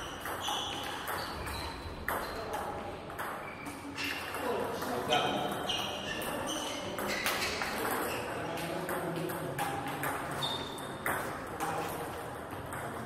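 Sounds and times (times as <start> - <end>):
ball bouncing: 0.0 - 13.0.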